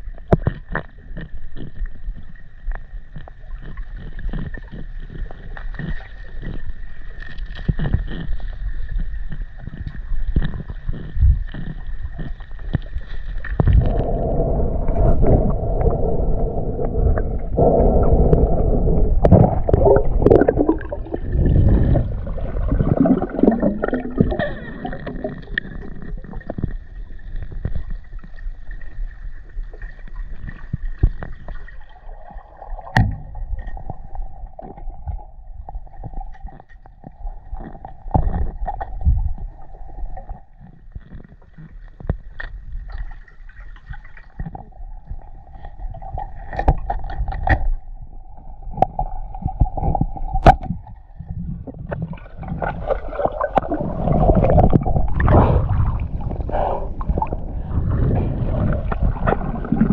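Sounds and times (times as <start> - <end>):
water gurgling and sloshing: 0.0 - 59.9
faint steady hum: 1.3 - 43.2.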